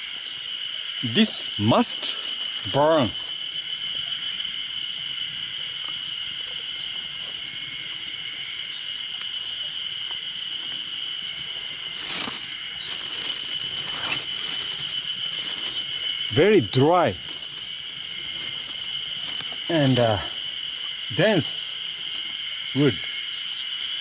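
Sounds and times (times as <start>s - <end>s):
insect song: 0.0s - 24.0s
rustling: 2.0s - 3.3s, 11.7s - 20.4s.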